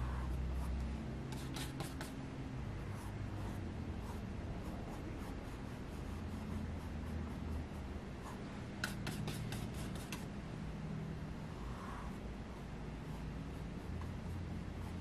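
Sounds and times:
paintbrush rubbing on canvas: 0.0s - 2.2s, 2.9s - 10.3s
low steady hum: 0.0s - 15.0s.

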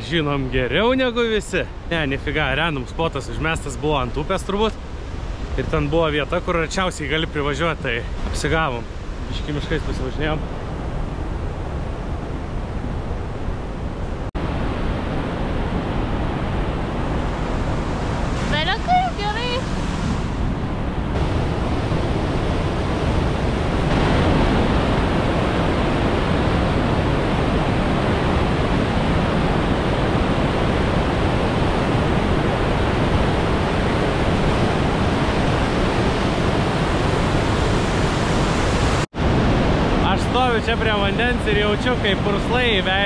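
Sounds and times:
waterfall roaring: 13.9s - 43.0s.

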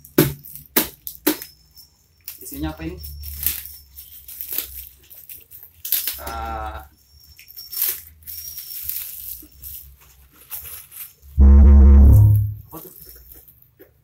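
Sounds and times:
plastic wrapping rustling and tearing: 2.3s - 11.4s.

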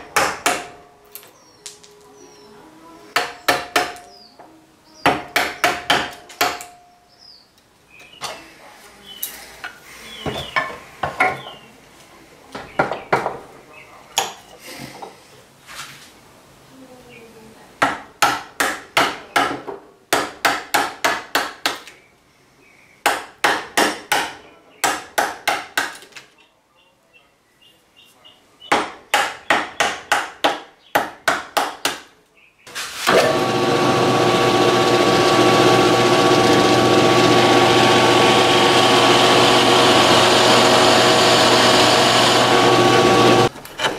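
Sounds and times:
mallet striking chisel into wood: 0.0s - 0.8s, 3.2s - 4.1s, 5.1s - 6.7s.

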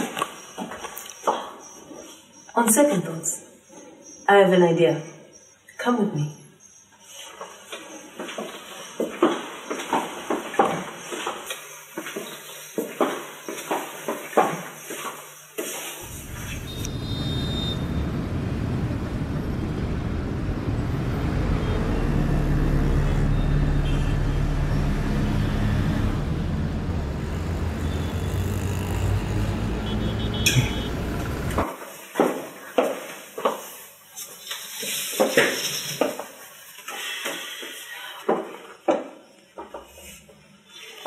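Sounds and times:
road traffic rumble: 16.0s - 31.8s.

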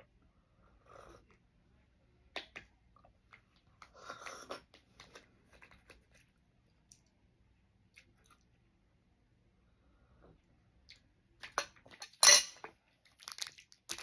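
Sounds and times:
chewing: 2.4s - 7.1s, 7.9s - 8.6s.

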